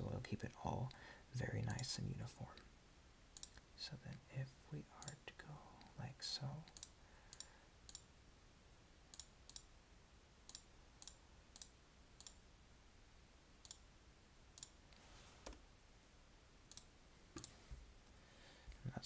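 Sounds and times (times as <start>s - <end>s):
computer mouse clicks: 1.6s - 1.9s, 3.4s - 3.6s, 6.7s - 8.1s, 9.1s - 9.7s, 10.5s - 12.4s, 13.6s - 13.8s, 14.6s - 15.6s, 16.7s - 17.6s.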